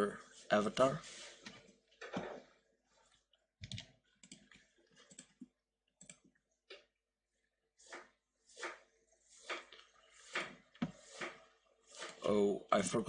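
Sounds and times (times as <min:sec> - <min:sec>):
keyboard and mouse clicks: 0:03.6 - 0:06.9.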